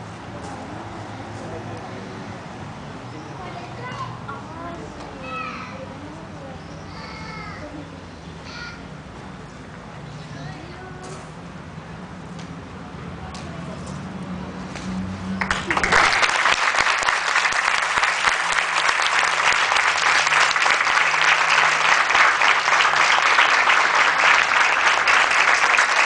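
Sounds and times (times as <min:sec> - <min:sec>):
audience applause: 0:15.4 - 0:26.0.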